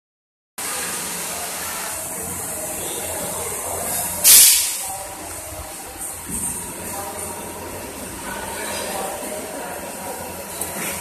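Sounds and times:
machine hiss and hum: 0.6s - 11.0s
compressed air burst: 4.2s - 4.9s.

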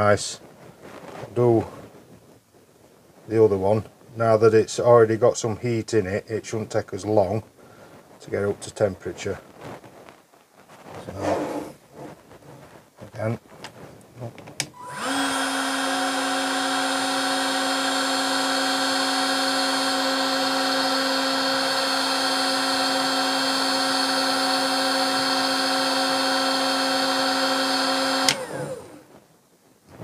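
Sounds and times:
heat gun motor whine: 14.7s - 29.1s.

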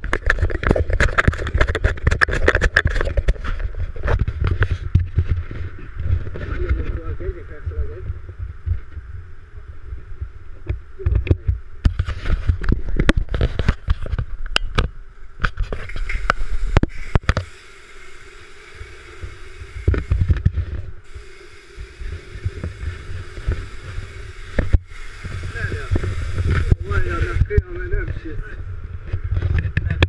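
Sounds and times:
pressure washer pump humming: 15.8s - 27.7s.

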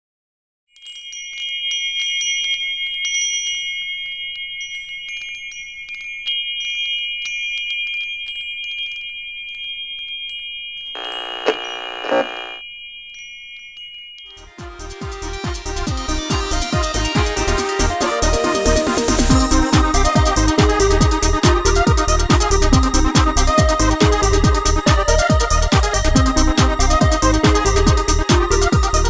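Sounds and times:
tinkling chimes: 0.7s - 10.9s, 12.6s - 14.4s
held high tones: 11.0s - 12.6s.

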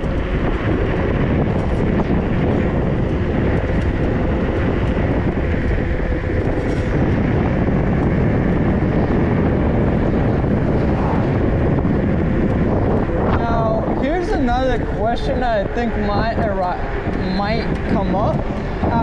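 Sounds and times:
faint steady whine: 0.0s - 19.0s
wind over microphone: 0.0s - 19.0s.

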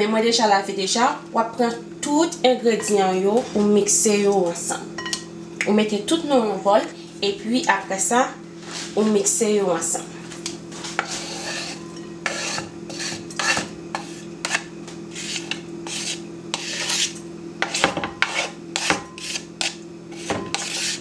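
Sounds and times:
steady low hum: 0.0s - 21.0s
tongs scraping on cutting board: 10.7s - 21.0s.

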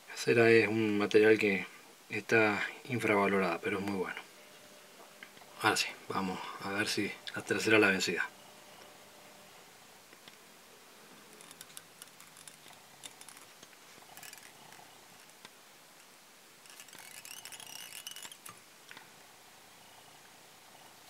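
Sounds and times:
fingers scratching thread: 11.3s - 15.4s, 16.6s - 18.6s.

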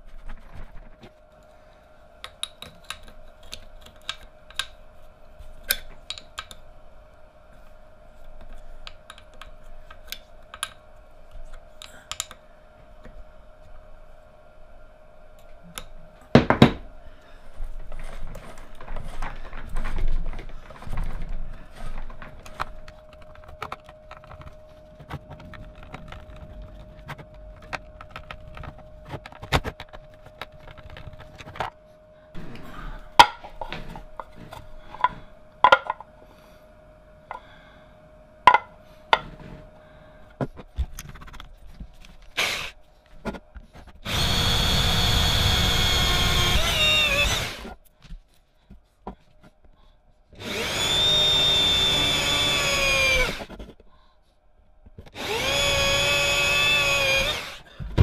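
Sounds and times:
clicks and knocks of parts: 33.2s - 36.1s
power drill boring into plastic: 42.4s - 42.7s, 44.0s - 47.7s, 50.4s - 53.5s, 55.1s - 57.6s.

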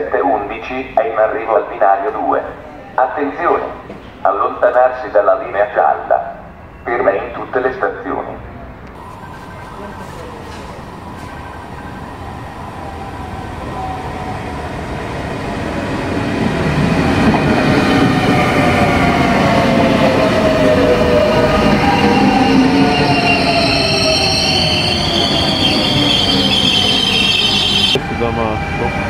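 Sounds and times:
train pulling in and braking: 0.0s - 29.0s
high brake squeal: 21.8s - 28.9s.

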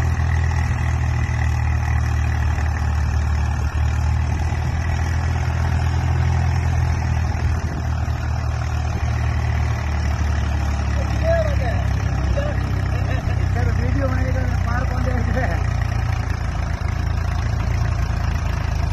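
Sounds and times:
tractor diesel engine under load: 0.0s - 18.9s.

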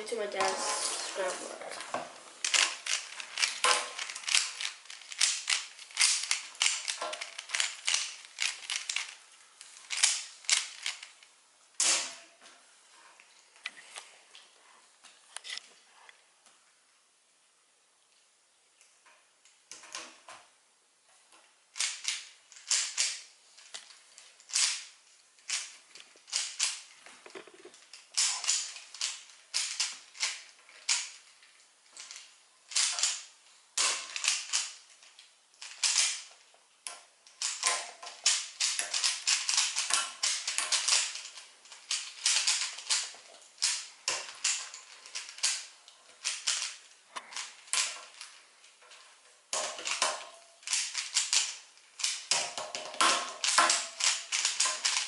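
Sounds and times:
puzzle cube plastic clicks: 2.4s - 12.2s, 21.7s - 55.0s.

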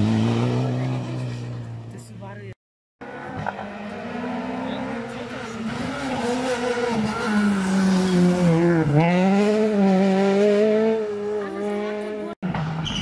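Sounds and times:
rally car engine passing: 0.0s - 2.0s, 3.0s - 13.0s.

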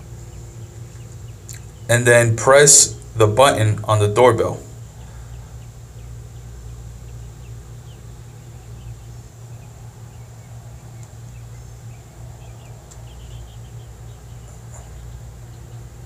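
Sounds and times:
steady low hum: 0.0s - 16.0s
faint bird chirps: 4.7s - 16.0s.

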